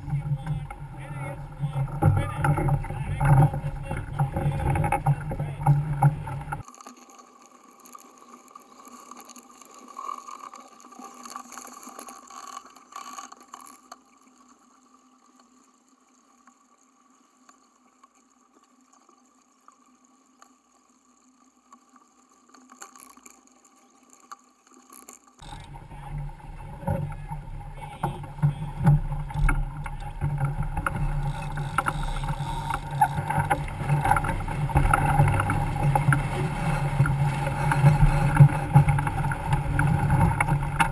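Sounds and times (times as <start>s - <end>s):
rush of wind and water: 0.0s - 6.7s, 25.4s - 40.9s.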